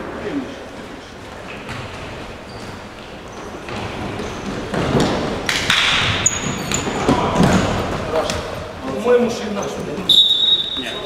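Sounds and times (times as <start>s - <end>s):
shoes squeaking on court: 1.3s - 11.0s.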